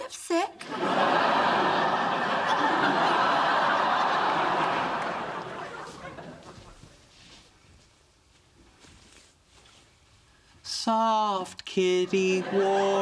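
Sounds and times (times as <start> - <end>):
audience laughing: 0.6 - 6.8, 11.8 - 13.0.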